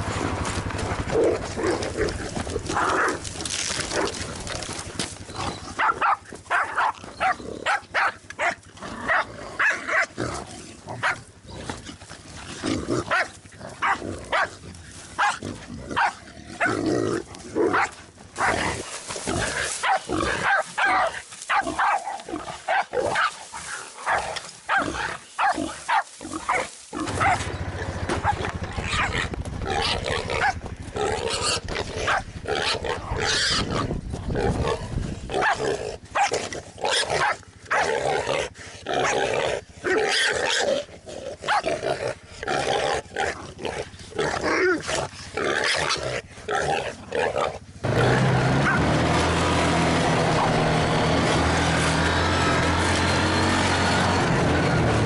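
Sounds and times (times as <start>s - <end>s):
dogs growling and snarling: 0.0s - 55.0s
dogs barking: 5.5s - 10.2s, 11.0s - 11.3s, 13.1s - 14.6s, 15.2s - 15.4s, 16.0s - 16.8s, 17.7s - 18.8s, 19.7s - 23.4s, 24.0s - 30.7s, 31.3s - 33.4s, 35.4s - 36.4s, 37.0s - 38.0s, 41.4s - 41.8s, 48.5s - 49.0s
low microphone rumble: 27.0s - 35.4s.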